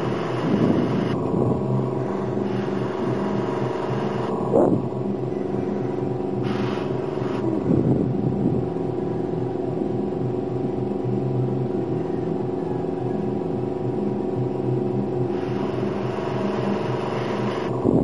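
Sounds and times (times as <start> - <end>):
airbrush air hiss: 0.0 - 1.2, 2.0 - 4.3, 6.4 - 7.5, 15.3 - 17.7
air compressor humming: 0.0 - 8.6, 15.2 - 18.0
wavering rumble: 0.0 - 18.0.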